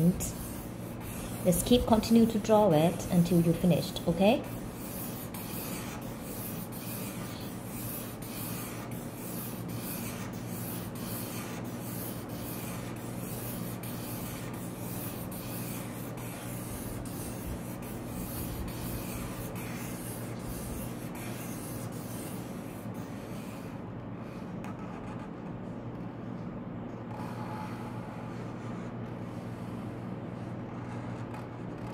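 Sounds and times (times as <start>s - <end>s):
marker scratching across paper: 0.0s - 26.0s, 27.1s - 31.9s
steady low hum: 0.0s - 31.9s.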